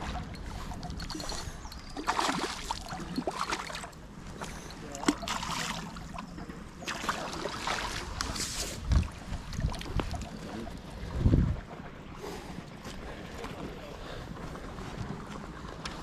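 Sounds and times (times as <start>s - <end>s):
water splashing: 0.0s - 11.3s
outdoor background noise: 0.0s - 16.0s.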